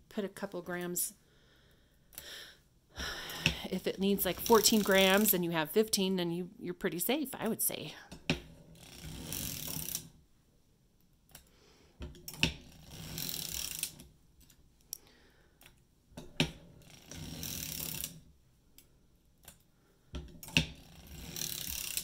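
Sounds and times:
sock knitting machine clacking: 0:03.4 - 0:05.4, 0:08.3 - 0:10.1, 0:16.2 - 0:18.2, 0:20.2 - 0:22.0.

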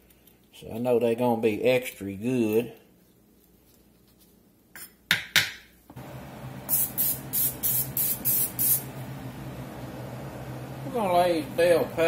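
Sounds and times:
oil spray hisses: 0:06.6 - 0:08.9.

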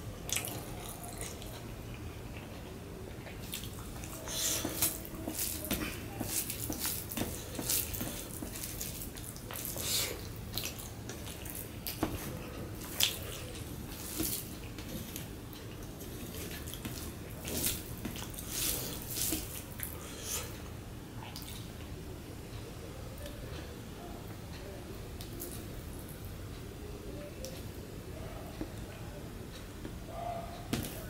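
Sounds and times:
wet squishing of food by hand: 0:00.0 - 0:20.6, 0:21.2 - 0:21.9.

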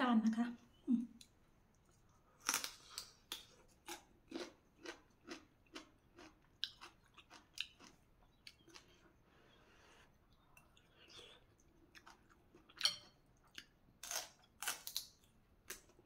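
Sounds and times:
crunchy chewing: 0:01.9 - 0:09.2.

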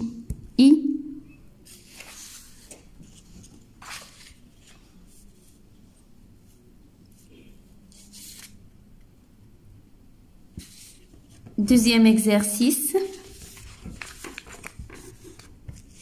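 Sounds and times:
paper sheets rustling: 0:01.6 - 0:05.6, 0:07.9 - 0:08.6, 0:12.5 - 0:16.0.

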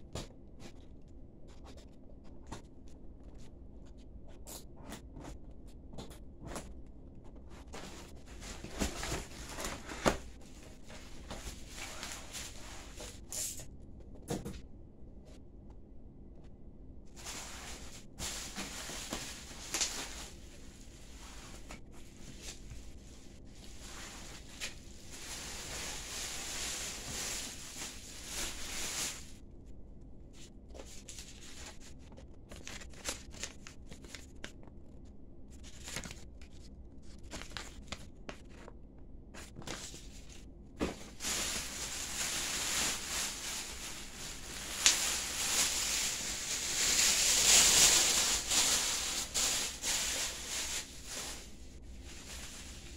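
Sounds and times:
plastic packaging crinkling: 0:17.2 - 0:29.3, 0:40.9 - 0:51.5.

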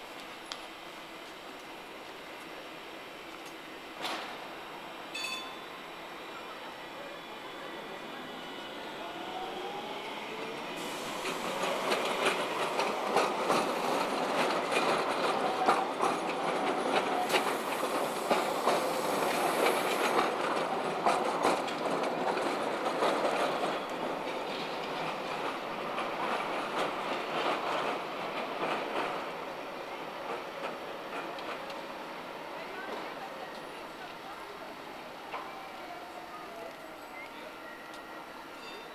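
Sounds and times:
tram passing: 0:00.0 - 0:38.9
wheels clicking over rail joints: 0:10.9 - 0:29.2.

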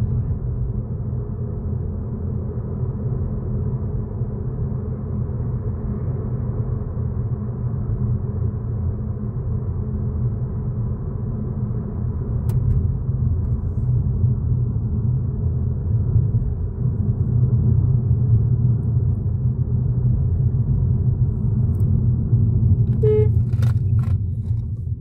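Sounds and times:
car cabin road rumble: 0:00.0 - 0:25.0
short tone: 0:22.9 - 0:23.5.

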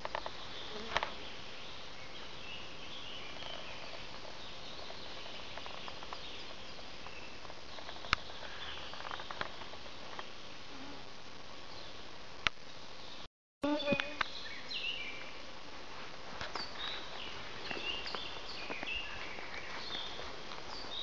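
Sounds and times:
steady forest hiss: 0:00.0 - 0:21.0
sharp clicks and crackles: 0:03.4 - 0:10.4.

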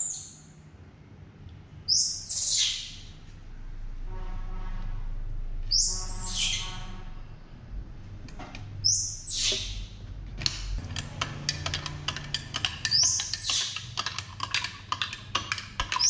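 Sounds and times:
baby monkey squealing: 0:01.9 - 0:03.0, 0:05.7 - 0:06.7, 0:08.8 - 0:09.8.

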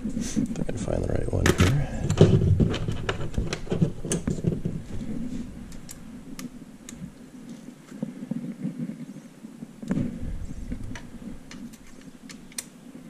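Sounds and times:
allen key metal clicks: 0:11.5 - 0:12.8.

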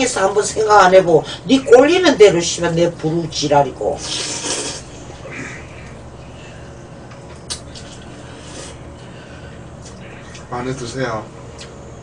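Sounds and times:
noodles slurped: 0:04.0 - 0:04.9
chewing and eating: 0:07.0 - 0:10.5.

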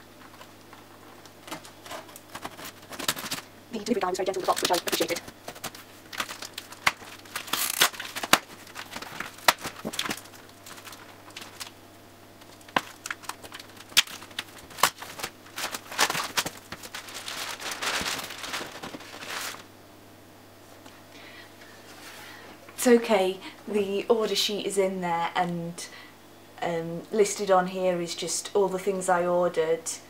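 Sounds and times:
plastic packaging rustling: 0:00.0 - 0:19.7
scissors cutting packing tape: 0:04.5 - 0:10.2.

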